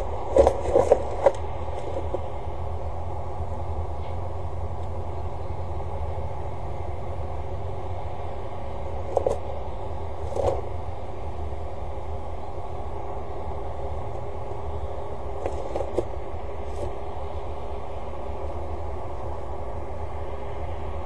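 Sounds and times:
low hum and rumble: 0.0 - 21.0.

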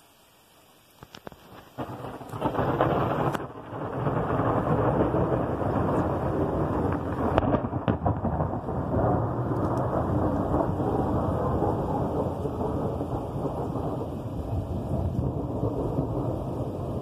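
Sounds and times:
heavy rain pouring: 0.0 - 17.0
sharp clicks: 9.5 - 9.9.

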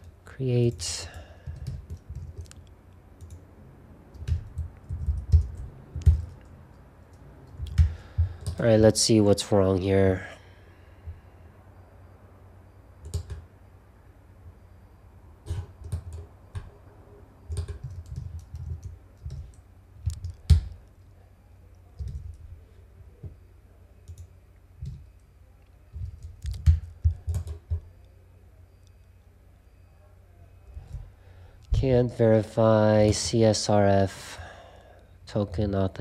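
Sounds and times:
computer keyboard typing: 0.0 - 3.4, 4.1 - 8.7, 13.0 - 13.5, 15.4 - 16.8, 17.5 - 20.8, 22.0 - 22.4, 24.0 - 25.3, 25.9 - 27.9.

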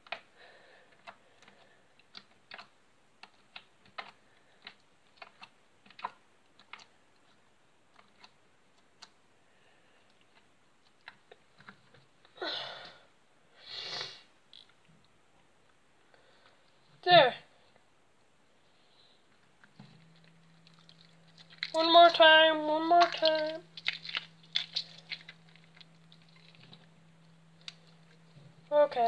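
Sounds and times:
longer louder slime noises: 0.0 - 9.3, 19.4 - 28.7.

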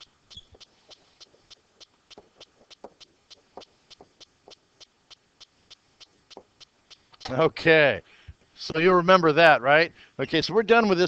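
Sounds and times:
stylus tapping on tablet screen: 0.0 - 7.3
faint even ticking: 0.0 - 9.2.

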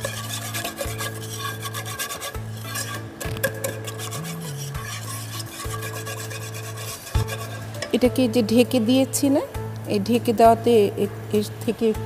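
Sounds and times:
whisk scraping saucepan: 0.0 - 8.2.

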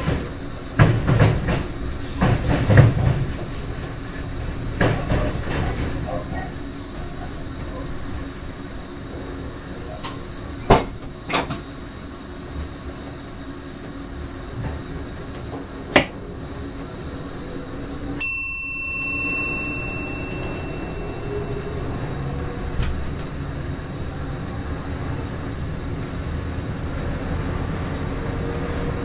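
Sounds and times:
electric train running rumble: 0.0 - 29.0
ringing tone: 18.2 - 23.2.

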